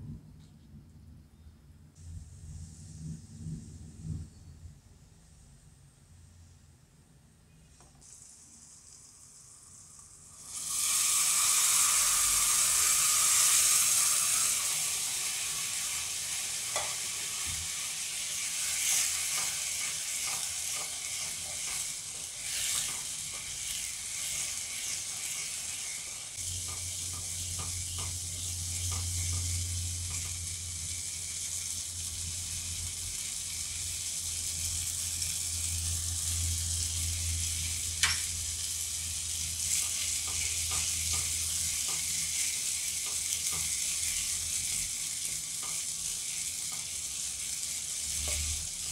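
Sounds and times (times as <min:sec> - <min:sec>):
milk sizzling in hot pan: 0:07.9 - 0:48.9
wooden spatula scraping: 0:18.7 - 0:26.0.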